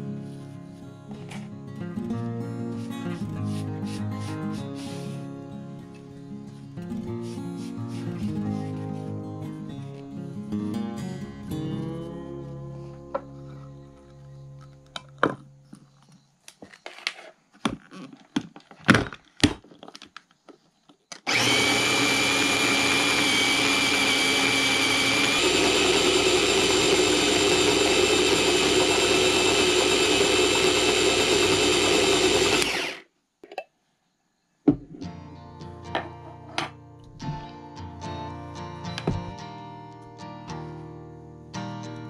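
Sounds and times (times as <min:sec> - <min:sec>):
food chopper motor whining: 0:21.2 - 0:33.1.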